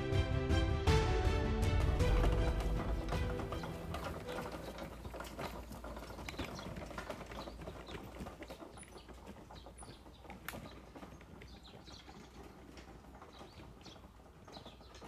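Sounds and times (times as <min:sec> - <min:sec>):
trolleys rattling and clicking: 0:01.2 - 0:15.0.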